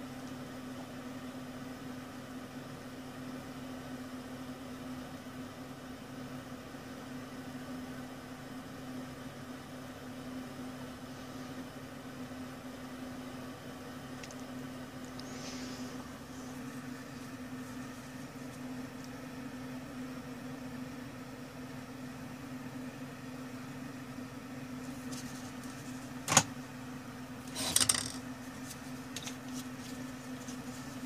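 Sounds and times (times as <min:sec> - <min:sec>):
rework station humming: 0:07.0 - 0:31.0.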